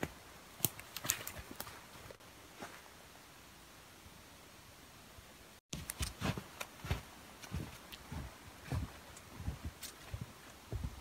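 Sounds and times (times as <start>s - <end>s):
faint outdoor hiss: 0.0s - 11.0s
footstep in snow: 5.8s - 10.9s.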